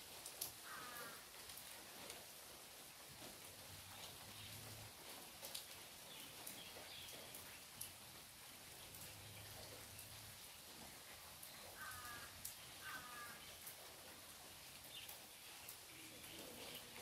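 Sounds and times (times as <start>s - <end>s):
rain dripping through trees: 0.0s - 17.0s
harsh bird calls: 11.8s - 13.5s.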